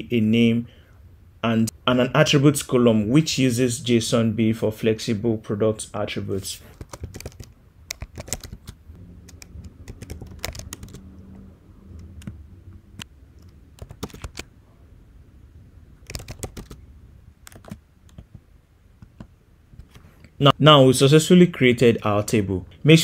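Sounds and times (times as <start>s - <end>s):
computer keyboard typing: 6.7s - 12.4s, 13.0s - 14.5s, 16.0s - 16.8s, 17.4s - 18.4s.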